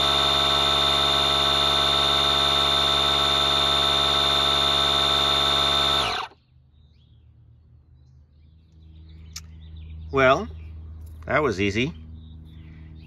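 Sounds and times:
tyre inflator compressor whining: 0.0 - 6.4.

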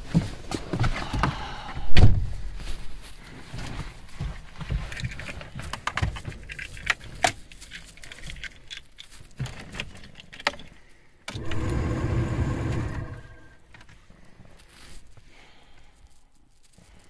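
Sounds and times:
steady electrical hum: 11.4 - 13.6.

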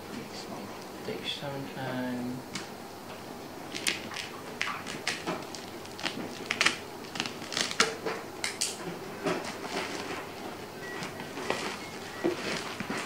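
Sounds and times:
plastic wrap crinkling and tearing: 3.7 - 8.8, 9.4 - 10.4, 11.0 - 13.0
scissors cutting plastic and tape: 3.7 - 8.8.

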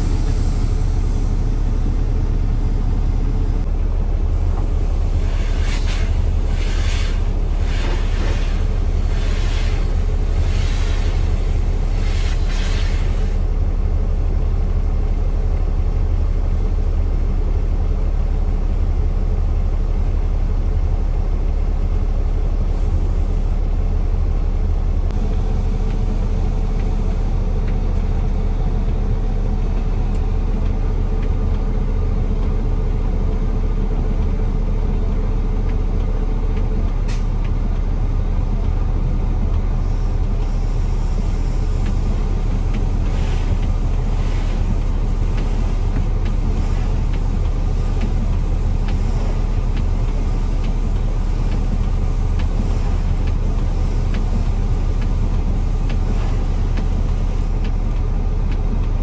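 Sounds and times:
diesel truck engine rumbling: 0.0 - 59.0
air hiss: 4.9 - 13.4.

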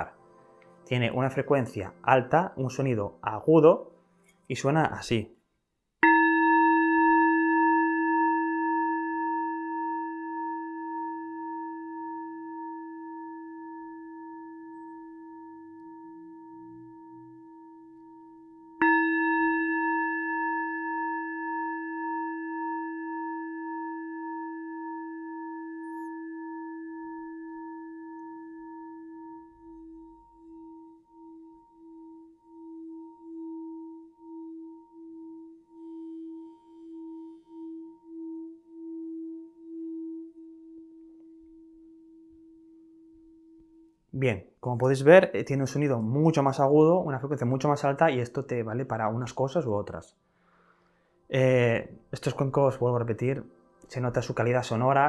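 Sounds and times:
singing bowl ringing: 6.0 - 44.1.

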